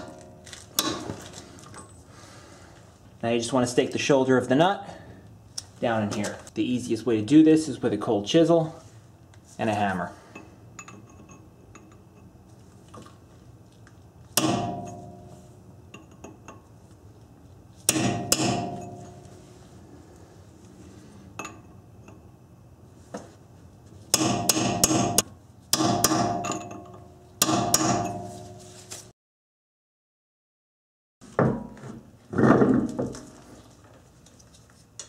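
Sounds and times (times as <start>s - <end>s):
hammer striking chisel ringing: 14.4s - 15.3s, 17.9s - 19.2s, 24.2s - 28.4s.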